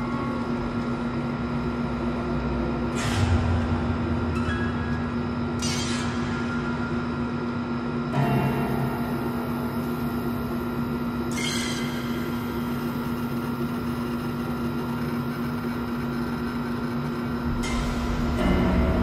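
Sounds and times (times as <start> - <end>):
eerie low music drone: 0.0 - 13.1, 17.2 - 19.0.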